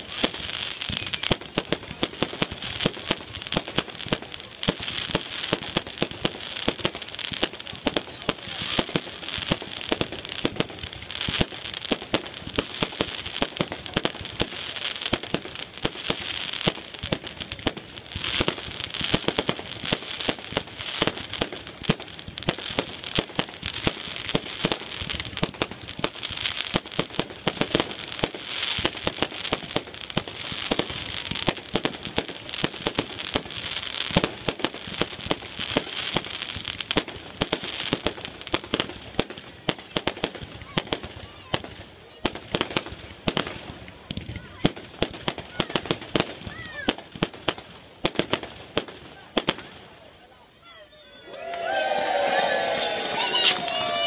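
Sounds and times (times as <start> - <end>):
fireworks bursting: 0.0 - 54.0.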